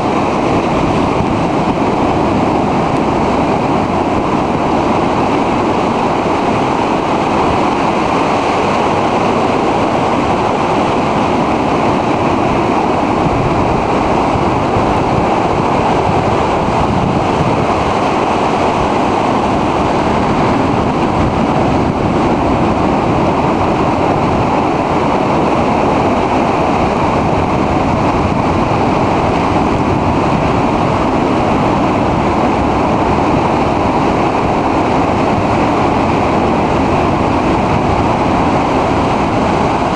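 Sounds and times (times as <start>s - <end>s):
surf breaking over rocks: 0.0s - 39.9s
wind buffeting microphone: 0.0s - 39.9s.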